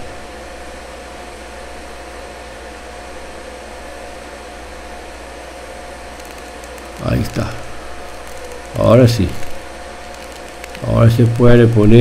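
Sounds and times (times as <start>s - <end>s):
welding arc hissing: 5.6s - 12.0s.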